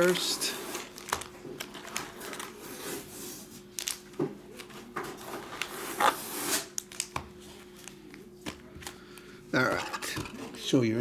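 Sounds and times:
foil packs rustling: 0.0s - 3.1s.

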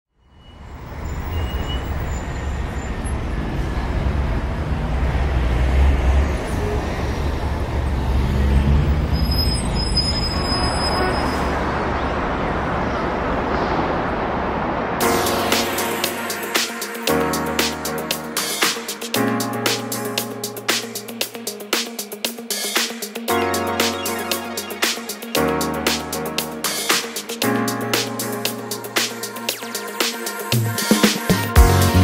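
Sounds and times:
city traffic rumble and hiss: 0.3s - 19.1s.

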